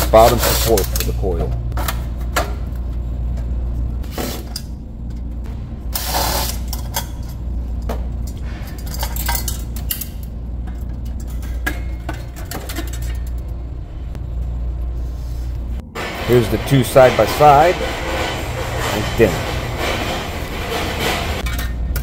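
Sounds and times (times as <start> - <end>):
steady low hum: 0.0 - 22.0
metal clinks and rattles: 8.2 - 13.6
scraping rush: 16.0 - 21.4.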